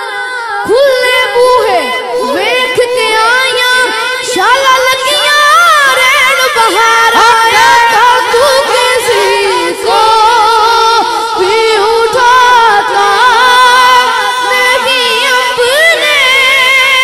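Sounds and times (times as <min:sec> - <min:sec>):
boy singing into a microphone: 0:00.0 - 0:17.0.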